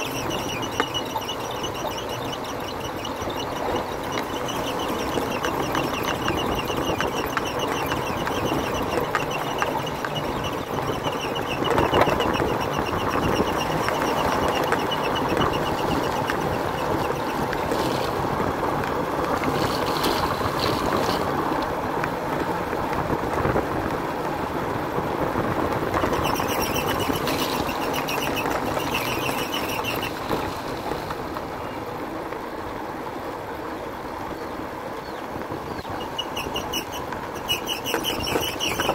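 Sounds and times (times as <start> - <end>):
motorbike engine: 0.0 - 38.9
road and wind noise: 0.0 - 38.9.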